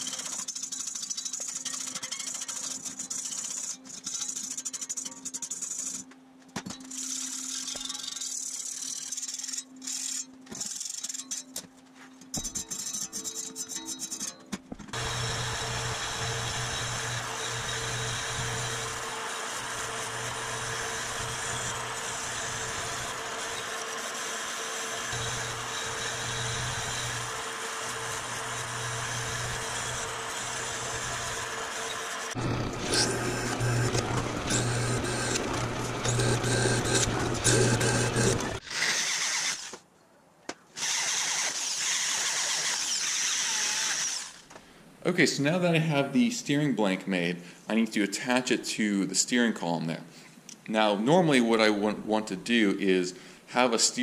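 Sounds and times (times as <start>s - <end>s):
handheld drill boring steel: 0.0s - 6.0s, 6.8s - 11.6s, 12.4s - 39.8s, 40.8s - 44.5s
bandsaw cutting steel: 0.0s - 6.1s, 6.8s - 11.6s, 12.4s - 39.8s, 40.8s - 44.5s.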